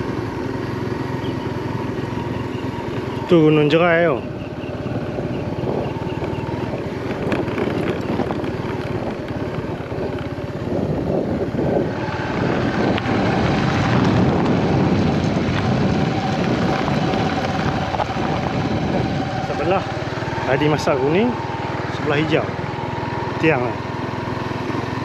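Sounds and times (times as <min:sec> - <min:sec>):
motorcycle engine running: 0:00.0 - 0:25.0
wind buffeting microphone: 0:01.4 - 0:23.3.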